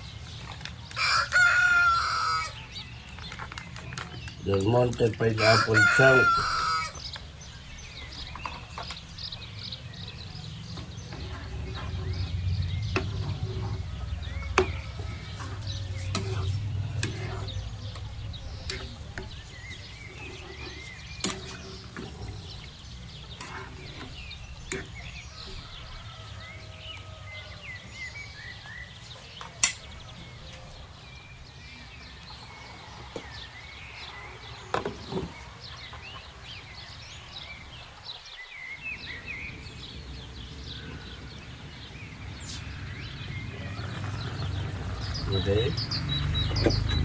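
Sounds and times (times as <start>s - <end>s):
small birds chirping: 0.0s - 47.0s
low hum: 9.2s - 25.6s.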